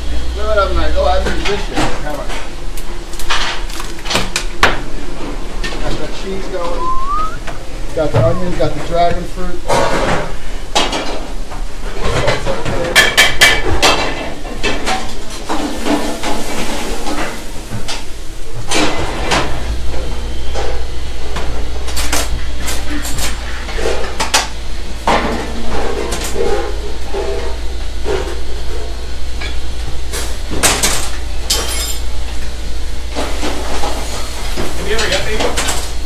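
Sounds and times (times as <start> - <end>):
steady low hum: 17.1 - 34.9.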